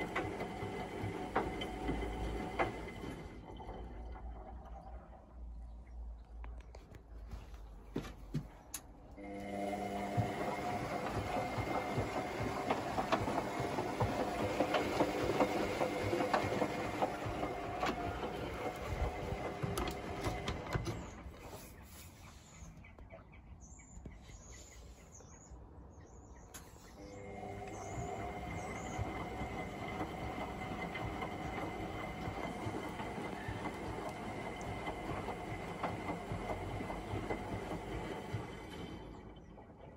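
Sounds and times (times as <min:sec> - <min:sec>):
washing machine motor hum: 0:00.0 - 0:05.6, 0:07.3 - 0:21.5, 0:27.0 - 0:39.9
washing machine clicks and knocks: 0:09.6 - 0:21.1.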